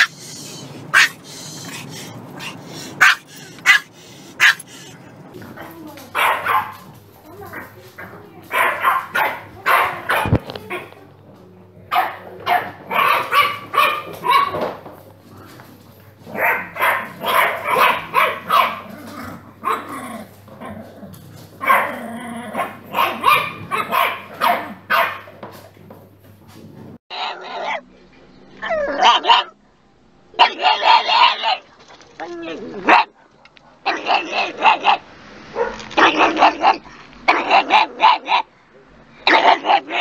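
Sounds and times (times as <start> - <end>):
puppies barking: 0.0 - 10.9, 11.9 - 15.0, 15.6 - 20.5, 21.4 - 25.6, 27.1 - 27.9, 28.6 - 29.6, 30.4 - 31.6, 32.8 - 38.5, 39.2 - 40.0
dog barking inside a car: 0.9 - 4.9, 6.2 - 6.8, 16.4 - 18.9, 22.6 - 25.3, 30.4 - 31.6.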